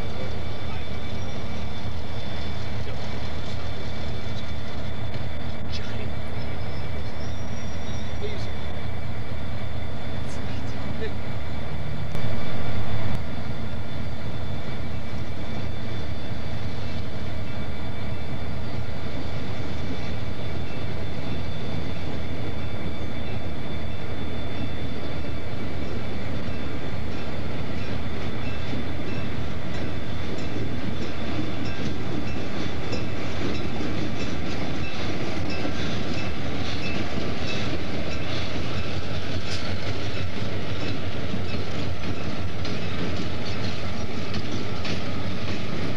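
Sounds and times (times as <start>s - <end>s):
diesel locomotive engine rumble: 0.0s - 45.9s
wheels clicking over rail joints: 25.6s - 45.9s.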